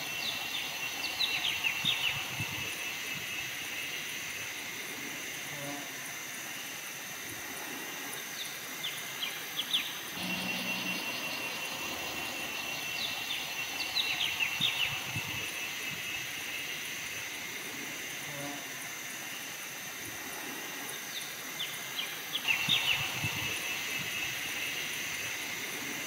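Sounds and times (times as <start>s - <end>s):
insects droning: 0.0s - 26.0s
bird chirps: 9.6s - 15.4s.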